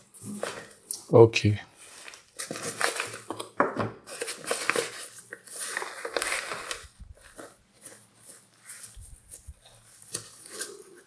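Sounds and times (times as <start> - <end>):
nylon pouch rustling and crinkling: 1.8 - 3.4, 4.1 - 11.0.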